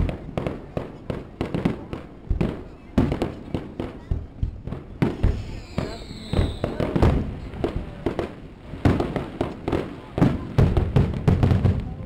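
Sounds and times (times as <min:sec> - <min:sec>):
fireworks bursting: 0:00.0 - 0:12.0
falling firework whistle: 0:05.0 - 0:07.3.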